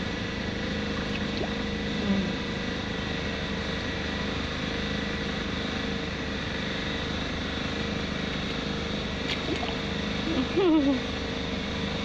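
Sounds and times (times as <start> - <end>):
engine humming: 0.0 - 12.0.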